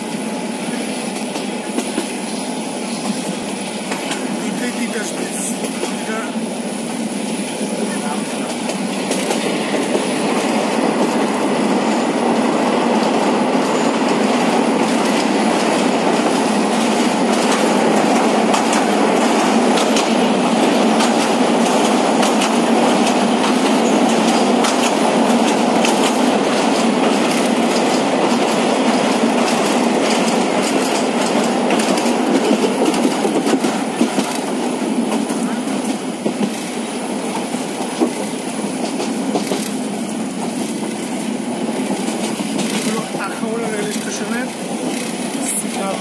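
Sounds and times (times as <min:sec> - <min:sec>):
train wheels rumbling on rails: 0:00.0 - 0:46.0
wheels clicking over rail joints: 0:13.0 - 0:36.6, 0:41.8 - 0:46.0.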